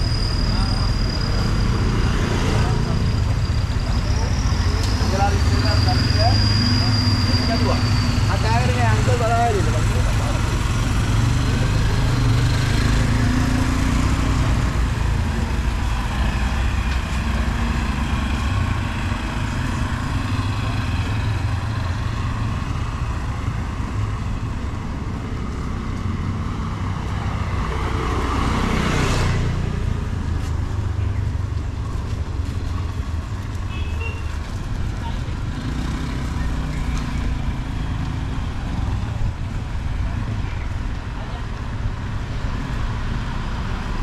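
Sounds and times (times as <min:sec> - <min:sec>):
traffic rumble: 0:00.0 - 0:44.0.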